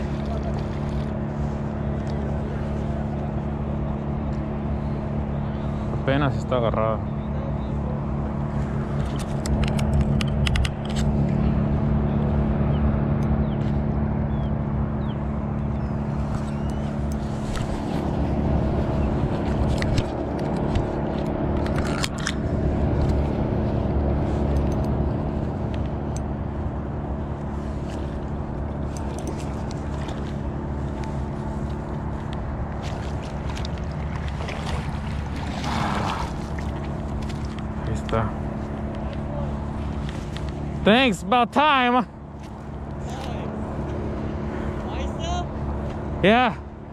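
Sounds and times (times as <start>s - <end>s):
low mechanical hum: 0.0s - 46.9s
water splashes: 32.7s - 37.8s.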